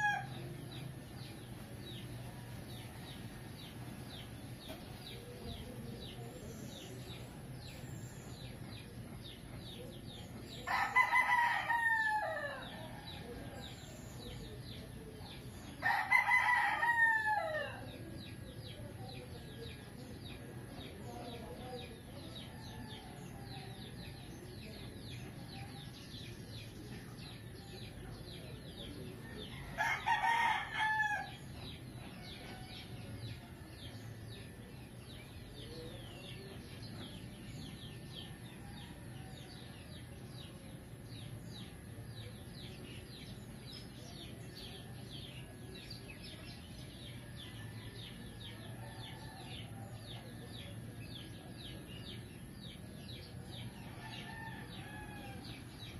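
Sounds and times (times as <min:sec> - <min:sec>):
rooster crowing: 0:10.7 - 0:13.2, 0:29.6 - 0:31.4, 0:53.8 - 0:55.5.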